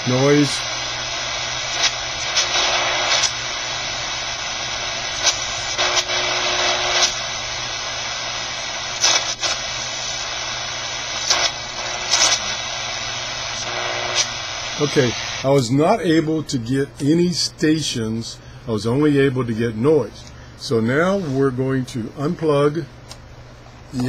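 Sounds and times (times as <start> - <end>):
radio static hiss: 0.0 - 18.2, 19.2 - 21.7.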